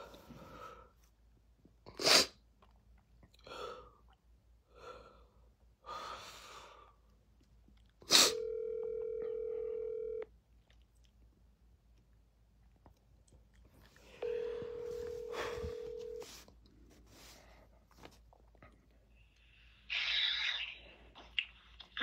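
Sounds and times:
phone ringback tone: 0:08.3 - 0:10.3, 0:14.2 - 0:16.3
breath noise: 0:13.9 - 0:18.1.

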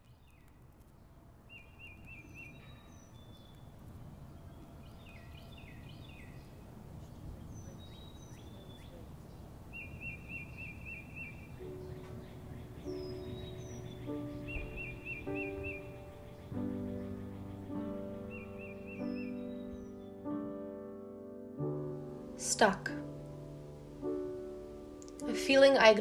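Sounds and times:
low steady rumble: 0:00.0 - 0:09.8
bird trill: 0:00.0 - 0:20.4
birds calling: 0:00.0 - 0:20.7.

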